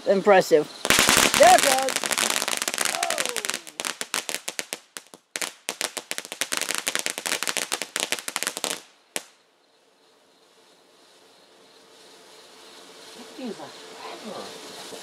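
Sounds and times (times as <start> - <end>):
firework crackling pops: 0.8 - 9.5, 14.2 - 15.0.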